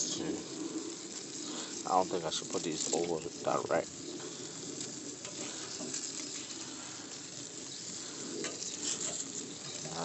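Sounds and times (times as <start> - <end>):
meat sizzling on a grill: 0.0 - 10.0.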